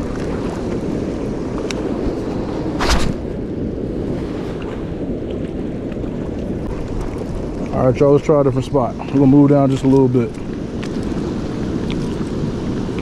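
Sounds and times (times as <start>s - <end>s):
wind on microphone: 0.0s - 13.0s
brief rustling: 2.8s - 3.2s.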